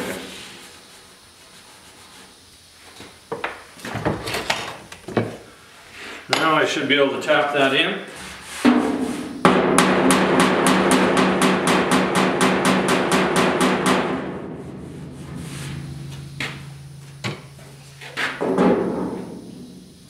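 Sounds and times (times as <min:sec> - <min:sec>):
hammer tapping on sheet metal: 0:08.7 - 0:19.5.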